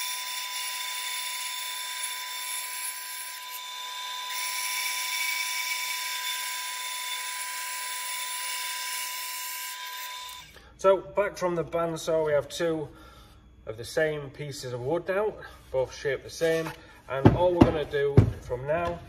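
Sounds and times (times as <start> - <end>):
bandsaw cutting wood: 0.0 - 10.5.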